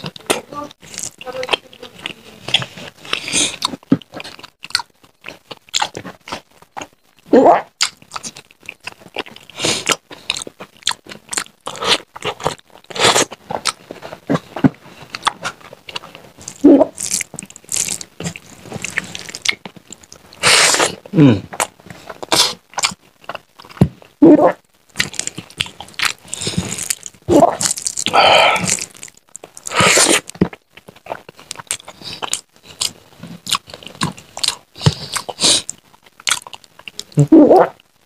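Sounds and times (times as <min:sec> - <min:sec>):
chewing and mouth smacking: 0:00.0 - 0:07.0, 0:07.8 - 0:24.2, 0:24.9 - 0:37.9.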